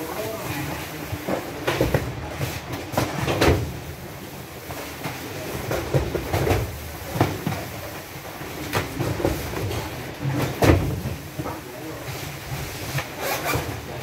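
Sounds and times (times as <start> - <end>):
cartons knocking and thumping: 1.2 - 3.8, 4.7 - 7.9, 8.6 - 11.4.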